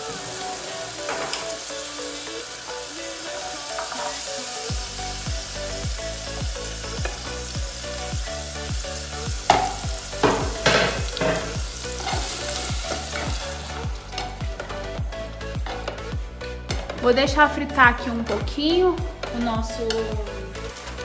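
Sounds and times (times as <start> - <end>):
onion and tomato sizzling in oil: 0.0 - 14.7
background music with steady beat: 0.0 - 21.0.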